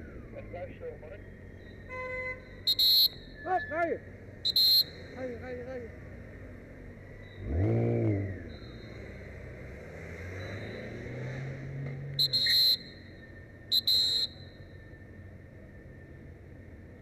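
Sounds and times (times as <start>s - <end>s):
whistle blasts: 1.6s - 5.0s, 12.2s - 15.2s
engine running and revving: 5.1s - 13.5s.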